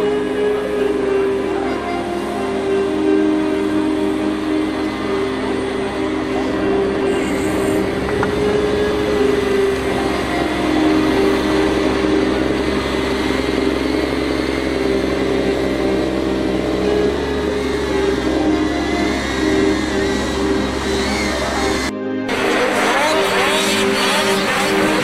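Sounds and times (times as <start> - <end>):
snow groomer engine running: 0.0 - 25.0.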